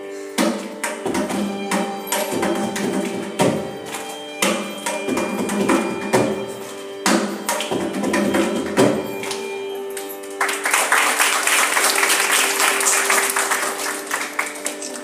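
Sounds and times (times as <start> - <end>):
mridangam drum strokes: 0.4 - 9.2
audience clapping: 9.2 - 15.0.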